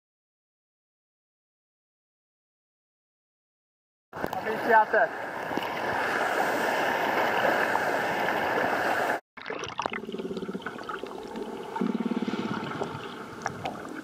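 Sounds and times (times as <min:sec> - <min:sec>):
rushing surf: 0:04.2 - 0:09.2.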